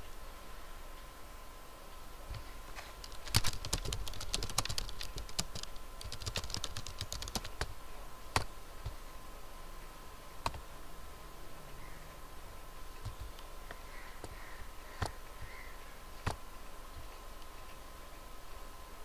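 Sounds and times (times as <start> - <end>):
typing on computer keyboard: 3.0 - 7.7.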